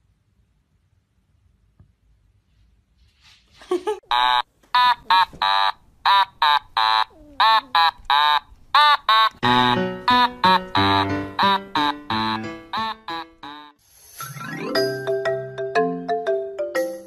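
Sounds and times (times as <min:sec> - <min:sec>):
kittens mewing: 0:06.4 - 0:08.5
music: 0:09.4 - 0:17.0.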